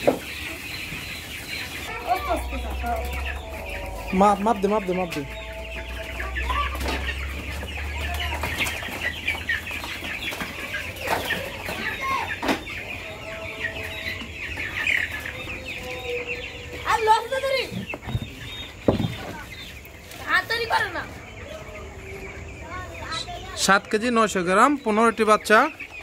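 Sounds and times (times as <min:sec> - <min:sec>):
chicks peeping: 0:00.0 - 0:26.0
plastic crate knocks: 0:18.8 - 0:19.3.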